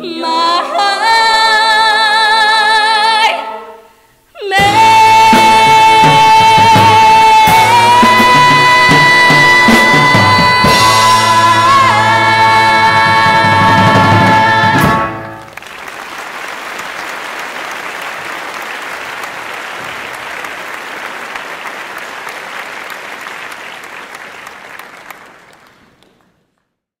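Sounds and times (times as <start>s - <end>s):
band and voices final chord: 4.5s - 15.4s
audience applause: 13.0s - 26.7s.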